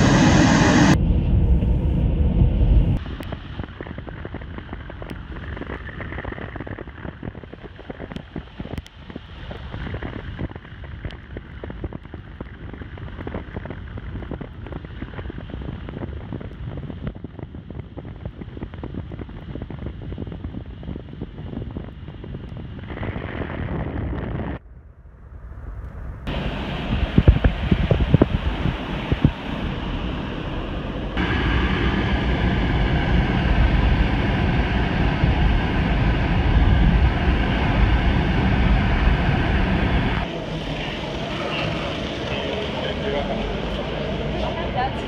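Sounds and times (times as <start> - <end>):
car road noise: 0.0 - 18.0, 25.3 - 45.0
wind buffeting microphone: 0.0 - 45.0.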